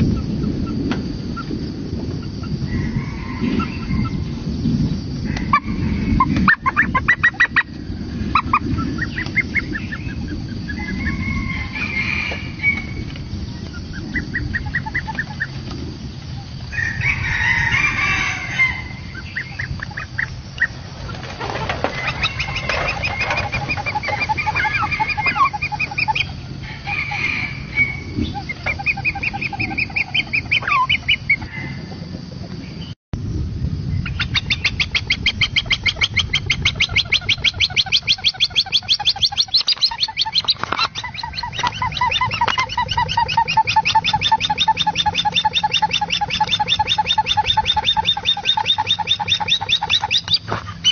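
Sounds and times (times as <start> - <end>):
hornbills cackling: 5.3 - 12.9, 13.7 - 15.6, 18.0 - 31.8, 34.2 - 50.9.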